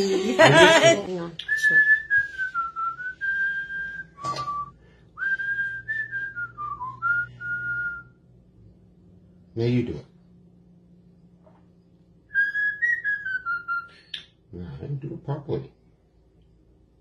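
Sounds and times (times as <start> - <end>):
person whistling a tune: 1.4 - 8.2.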